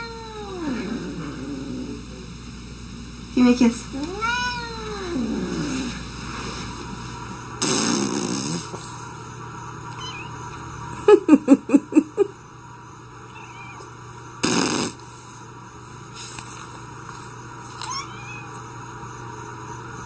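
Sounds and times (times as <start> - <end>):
kitten hissing: 7.6 - 8.9, 14.4 - 15.0.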